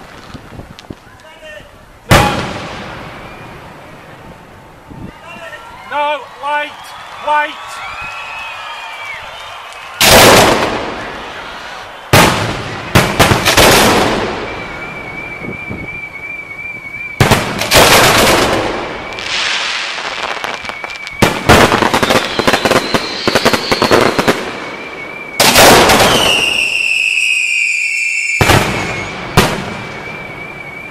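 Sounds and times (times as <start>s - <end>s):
fireworks bangs and crackling: 0.0s - 1.4s, 2.0s - 5.0s, 8.1s - 30.9s
falling firework whistle: 2.1s - 4.1s, 6.7s - 30.9s
high whistling tone: 6.6s - 10.0s, 14.2s - 17.3s, 18.8s - 30.9s.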